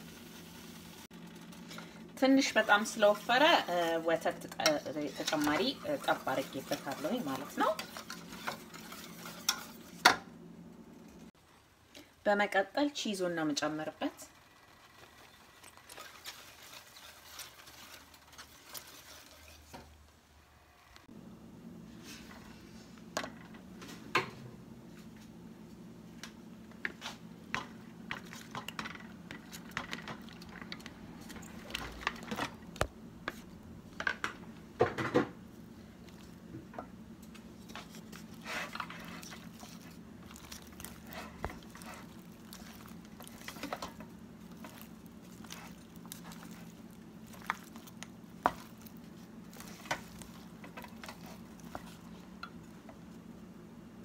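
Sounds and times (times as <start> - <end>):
whisk scraping a metal pan: 2.4 - 10.1, 14.9 - 19.9.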